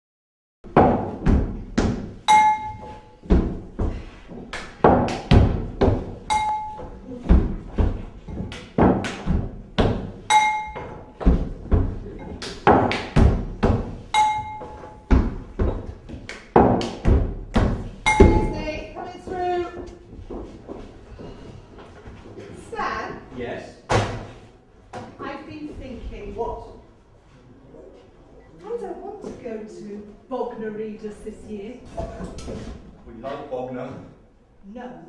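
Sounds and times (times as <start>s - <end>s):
short metallic ring: 2.3s - 3.1s, 6.3s - 6.8s, 10.3s - 10.8s, 14.1s - 15.0s, 18.1s - 18.6s.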